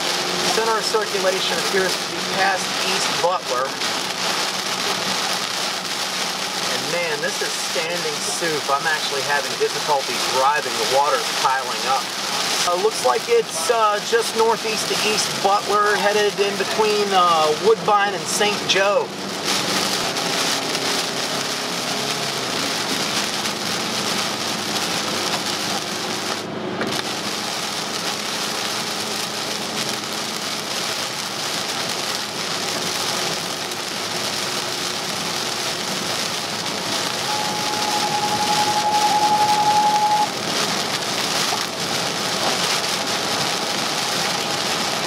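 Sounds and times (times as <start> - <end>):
heavy rain on a car: 0.0 - 45.0
tyres hissing on a wet road: 0.0 - 45.0
steady single tone: 37.2 - 40.3.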